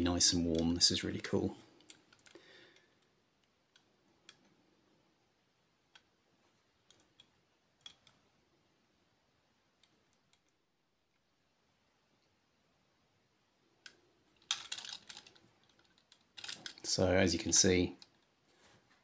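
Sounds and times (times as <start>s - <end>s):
model vehicles clicking in fingers: 13.8s - 16.9s.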